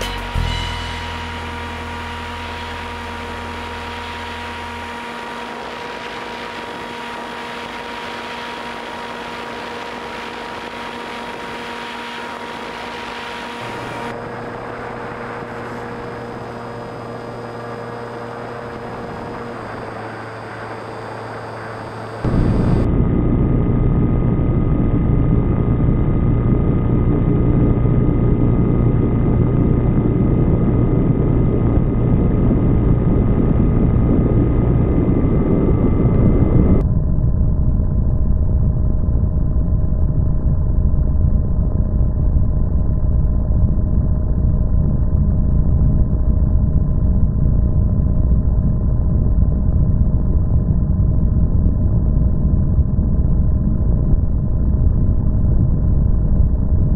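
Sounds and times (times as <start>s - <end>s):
model airplane motor hum: 0.0s - 36.8s.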